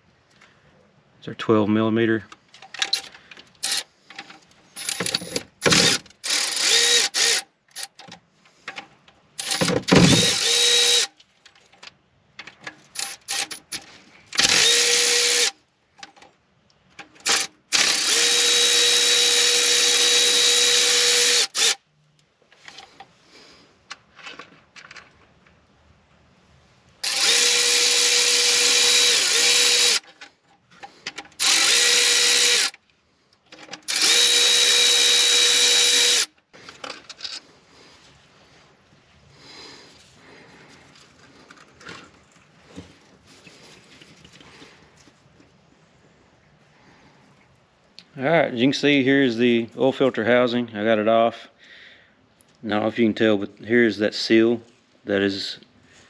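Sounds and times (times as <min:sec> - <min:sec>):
cordless ratchet whirring: 0:02.8 - 0:03.9, 0:04.8 - 0:08.0, 0:09.4 - 0:11.2, 0:14.4 - 0:15.6, 0:17.2 - 0:21.8, 0:27.0 - 0:30.1, 0:31.4 - 0:32.8, 0:33.8 - 0:36.4.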